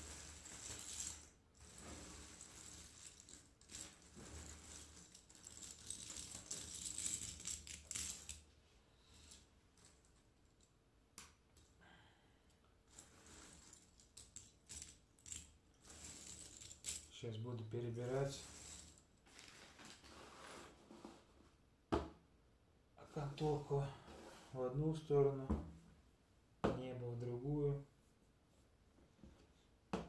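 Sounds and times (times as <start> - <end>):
puzzle pieces shuffled on wooden table: 0.0 - 8.5, 9.1 - 10.6, 12.9 - 17.2, 18.0 - 21.2.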